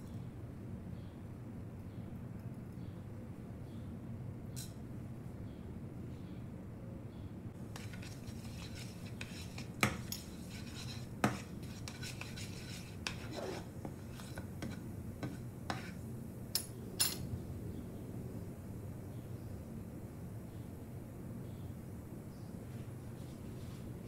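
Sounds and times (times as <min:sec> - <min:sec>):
spatula scraping a pan: 0:07.7 - 0:16.0.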